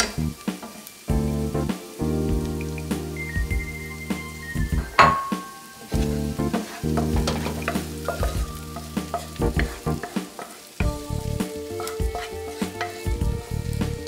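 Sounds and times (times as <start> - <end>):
background music with held chords: 0.0 - 14.0
vegetables sizzling: 0.0 - 14.0
wooden spatula scraping pan: 5.0 - 14.0.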